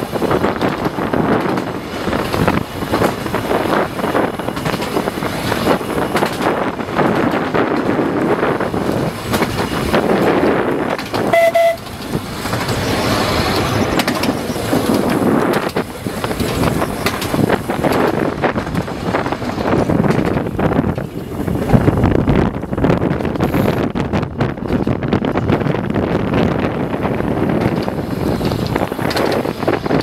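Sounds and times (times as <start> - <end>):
electric tram rumbling and rattling: 0.0 - 30.0
wind buffeting microphone: 0.0 - 30.0
tram horn toot: 11.2 - 12.2.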